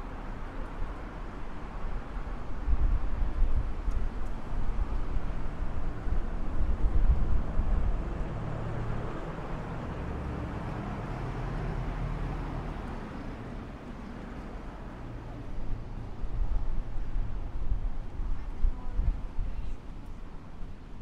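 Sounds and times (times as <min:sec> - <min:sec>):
cars driving past: 0:04.8 - 0:17.5.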